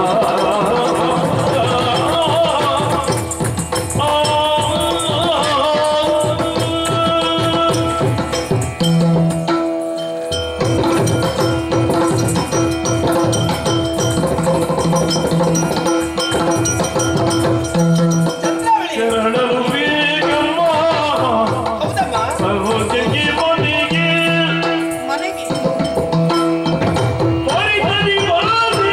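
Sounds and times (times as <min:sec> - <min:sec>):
fast drumming: 0:00.0 - 0:09.7, 0:10.5 - 0:28.9
held pitched notes: 0:06.1 - 0:28.9.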